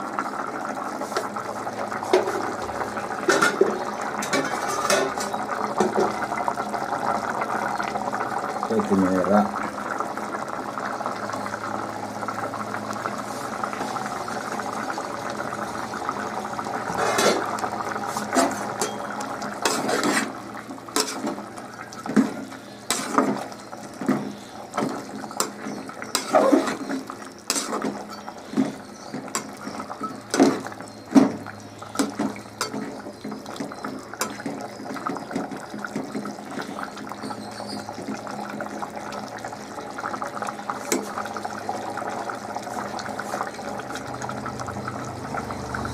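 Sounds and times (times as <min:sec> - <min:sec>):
curry simmering in a pot: 0:00.0 - 0:45.9
ladle scraping metal pot: 0:03.2 - 0:06.2, 0:16.8 - 0:35.2, 0:42.7 - 0:44.1.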